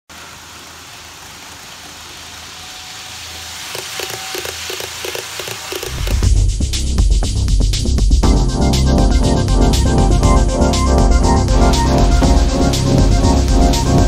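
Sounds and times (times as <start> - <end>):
model train rushing noise: 2.2 - 6.2
wheels clicking over rail joints: 3.6 - 6.2
music with heavy beat: 5.9 - 14.0.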